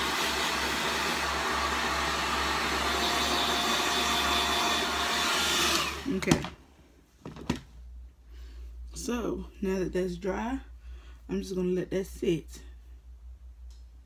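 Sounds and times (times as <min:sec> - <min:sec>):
hair dryer blowing: 0:00.0 - 0:06.4.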